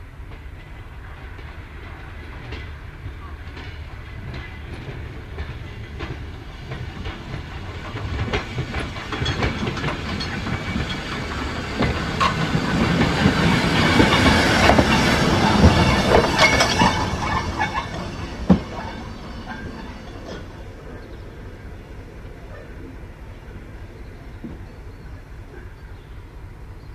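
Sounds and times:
train wheels clicking over rail joints: 0.2 - 21.2.

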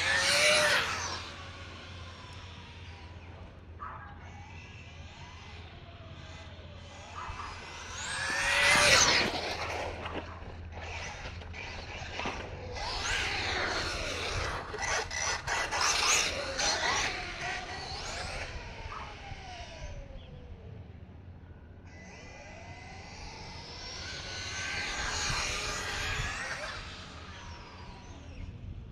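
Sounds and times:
rc truck electric motor whining: 0.0 - 21.0, 21.8 - 28.8.

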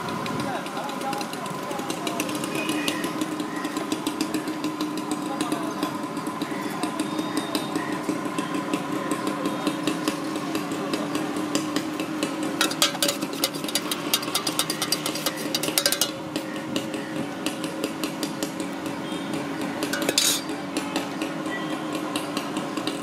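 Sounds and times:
spoon clinking against steel pot: 12.6 - 16.4, 19.9 - 20.5.

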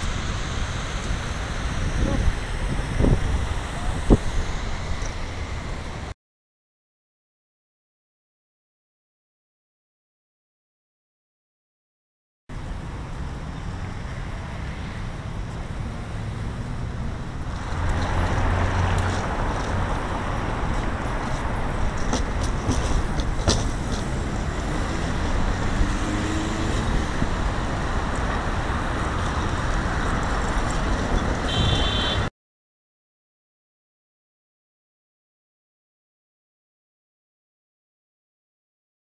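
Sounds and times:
highway traffic rushing: 0.0 - 6.2, 12.5 - 32.3.

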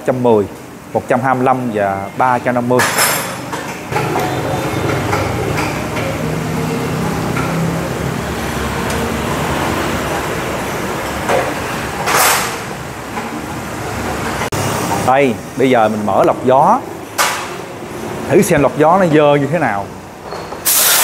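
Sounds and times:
engine and traffic noise: 0.0 - 21.0
loud hiss or clatter: 20.6 - 21.0.

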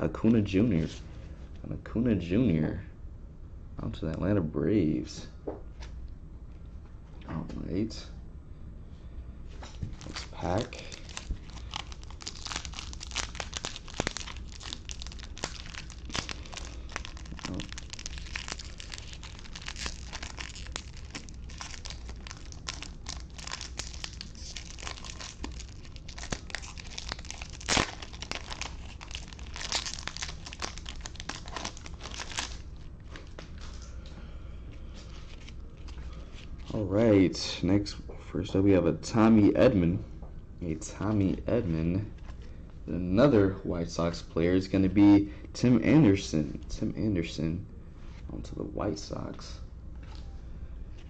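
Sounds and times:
foil wrapper crinkling and tearing: 9.7 - 33.7.

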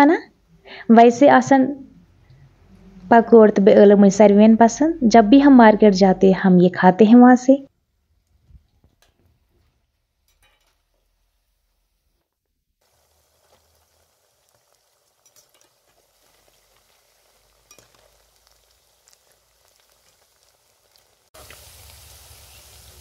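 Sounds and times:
food sizzling in hot oil: 9.0 - 12.2, 12.8 - 23.0.

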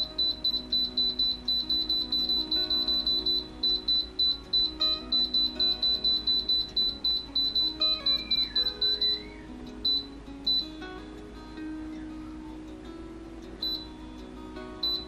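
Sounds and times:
rapid high-pitched beeping: 0.0 - 10.8, 14.8 - 15.0
background music: 0.0 - 15.0.

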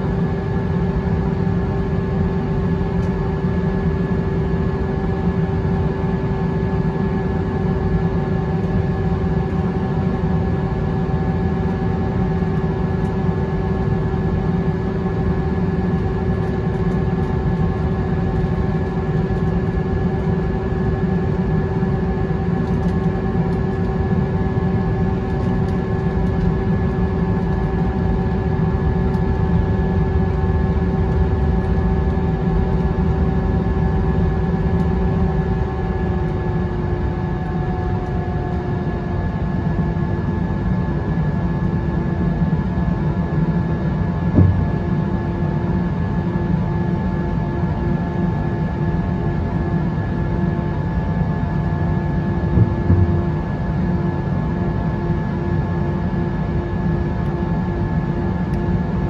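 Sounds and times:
jet engine whine: 0.0 - 59.0
low engine rumble: 44.3 - 45.2, 52.5 - 54.0.

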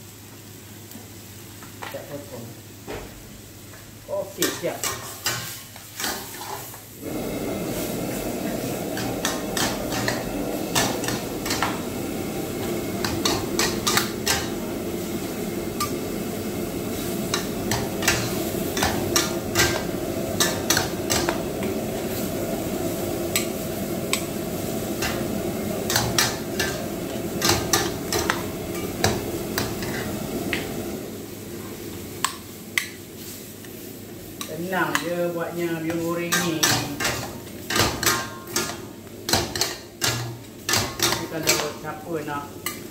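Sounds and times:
spatula clanking and scraping wok: 4.4 - 6.9, 7.7 - 16.3, 16.9 - 30.8, 34.4 - 42.0, 42.6 - 42.9
gas burner rushing: 4.4 - 31.6.

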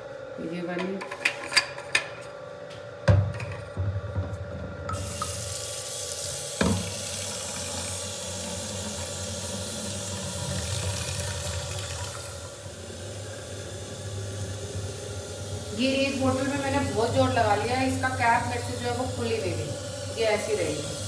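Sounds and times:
tap water filling plastic bottle: 6.6 - 12.4.

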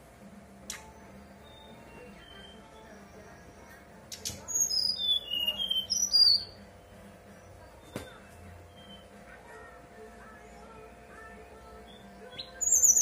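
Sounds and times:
sharp clicks: 0.6 - 0.9
bird whistling song: 1.0 - 6.6, 8.7 - 9.1, 11.8 - 13.0.

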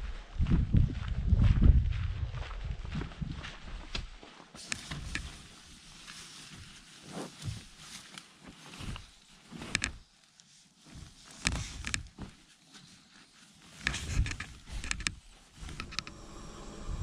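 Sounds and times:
soft thumps and crinkles: 3.9 - 16.2
sleeping bag rustling: 4.6 - 16.4.

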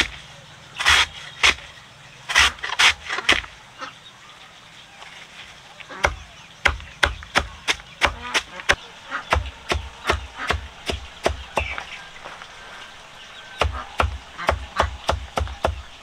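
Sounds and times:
sharp chopping strokes: 0.0 - 0.2, 0.8 - 1.7, 2.3 - 3.5, 6.0 - 11.9, 13.6 - 16.0.

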